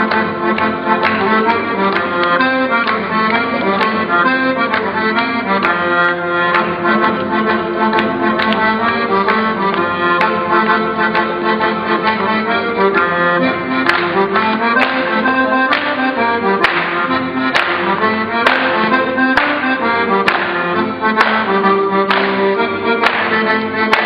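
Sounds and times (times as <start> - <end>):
accordion playing dance tune: 0.0 - 24.0
sharp percussive beat: 13.8 - 24.0.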